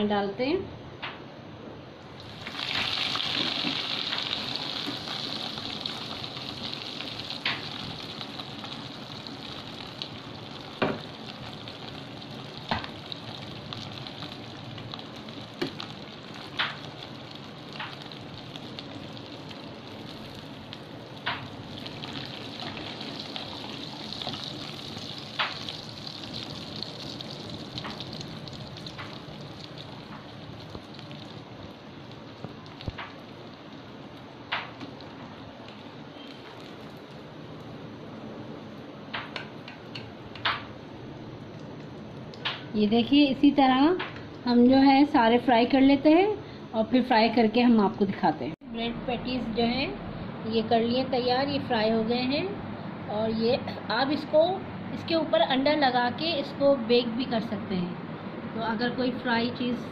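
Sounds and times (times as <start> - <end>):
oil popping and crackling: 2.1 - 37.8, 41.4 - 42.7
patty sizzling in hot oil: 2.1 - 38.0.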